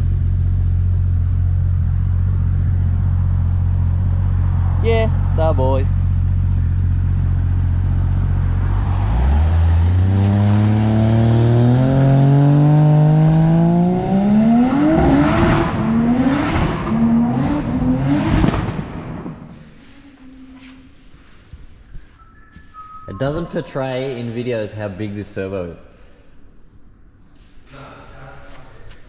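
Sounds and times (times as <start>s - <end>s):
car engine accelerating: 0.0s - 19.9s.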